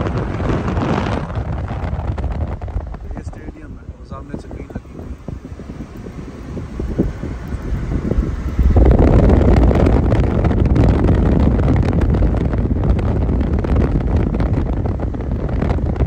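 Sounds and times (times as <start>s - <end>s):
car road noise: 0.0s - 16.0s
wind rushing over microphone: 0.0s - 16.0s.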